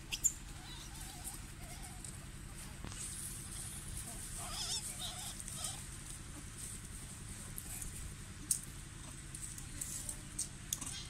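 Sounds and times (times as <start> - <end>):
animal squeaks: 0.0 - 2.0, 4.4 - 5.8
low steady rumble: 0.0 - 11.0.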